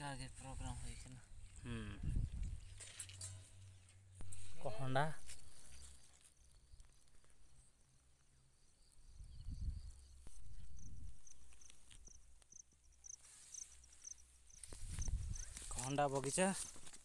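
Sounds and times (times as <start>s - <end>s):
wind buffeting microphone: 2.0s - 2.8s, 9.2s - 10.0s, 14.8s - 15.6s
faint high chirping: 5.5s - 15.6s.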